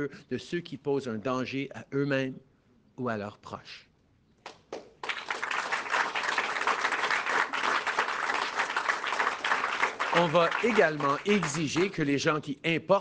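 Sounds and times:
audience applauding: 4.8 - 12.1.

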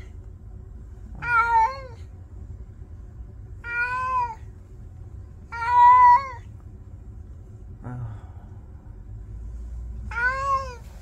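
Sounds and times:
faint low hum: 0.0 - 11.0
cat meowing: 1.1 - 2.0, 3.6 - 4.5, 5.5 - 6.4, 10.1 - 10.8.

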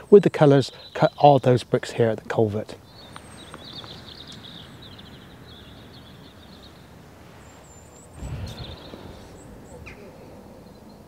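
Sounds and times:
outdoor background noise: 0.0 - 11.0
small birds chirping: 0.0 - 11.0
low rumble: 8.2 - 9.8.

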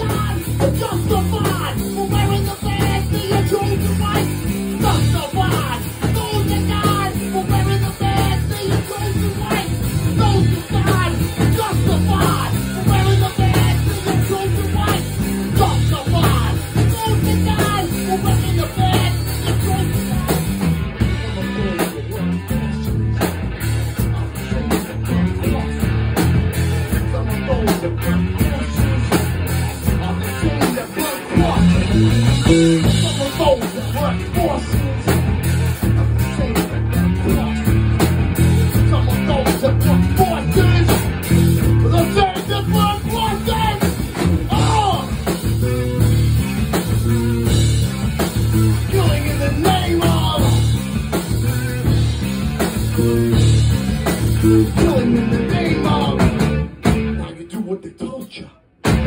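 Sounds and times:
person singing: 0.0 - 23.4, 29.8 - 35.2, 38.7 - 41.1, 41.7 - 45.3, 48.6 - 50.8, 54.3 - 58.5
drum kit: 0.0 - 57.4, 58.8 - 59.0
electric guitar: 0.0 - 57.4.

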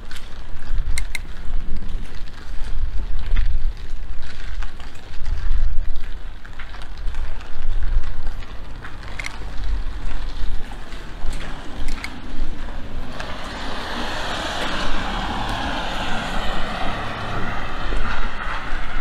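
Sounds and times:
low fluctuating street rumble: 0.0 - 19.0
sharp clicks: 0.9 - 1.4, 10.2 - 12.4.

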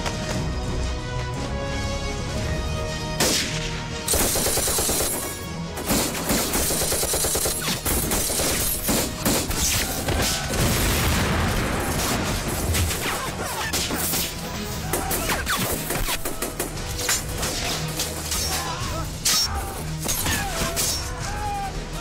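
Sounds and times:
film music: 0.0 - 22.0
rapid gunfire volleys: 4.1 - 18.1.

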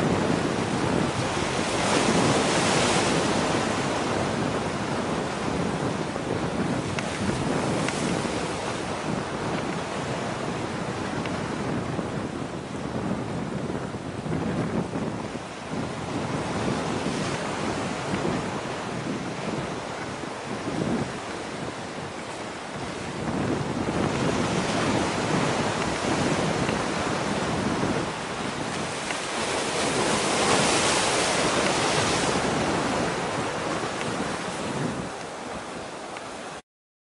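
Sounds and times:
sea waves: 0.0 - 36.6
wind noise on microphone: 0.0 - 36.6.

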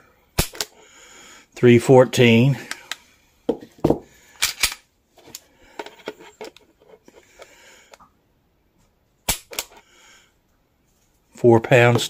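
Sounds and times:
small clicks and handling: 4.4 - 8.0, 9.3 - 9.8.

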